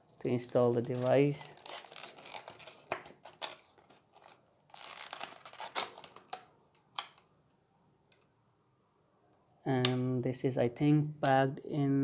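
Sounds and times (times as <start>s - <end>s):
plastic blister pack crinkling: 0.4s - 7.2s.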